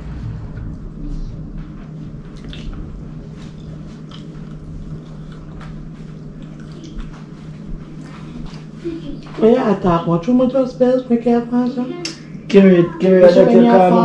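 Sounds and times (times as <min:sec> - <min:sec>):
steady low hum: 0:00.0 - 0:14.0
wet chewing and lip-smacking: 0:02.3 - 0:02.8, 0:03.4 - 0:08.8.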